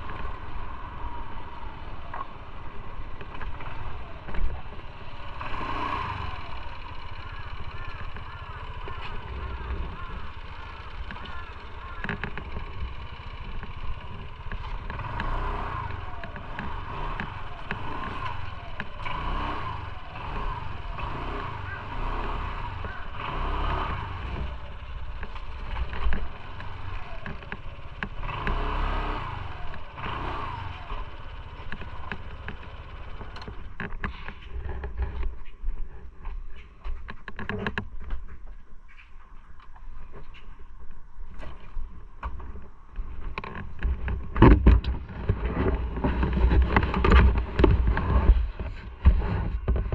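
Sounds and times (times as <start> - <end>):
motorcycle running: 0.0 - 49.9
small knocks and rattles: 10.9 - 15.0, 41.4 - 49.9
wind rumble on microphone: 33.3 - 49.9.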